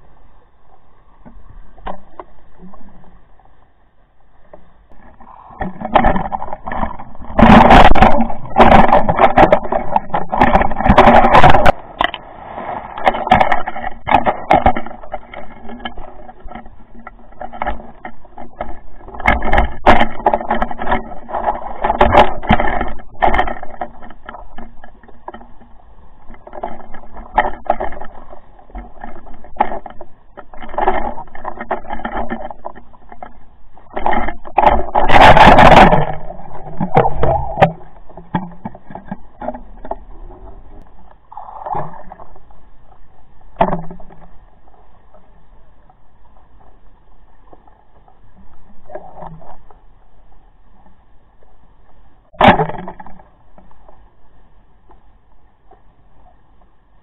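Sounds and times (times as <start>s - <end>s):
camera housing knocking underwater: 5.6s - 12.2s, 34.0s - 40.1s.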